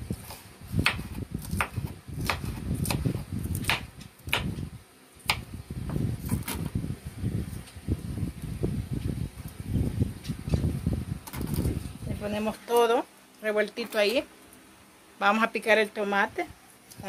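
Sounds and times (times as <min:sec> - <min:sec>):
knife chopping on wooden board: 0:00.2 - 0:04.6.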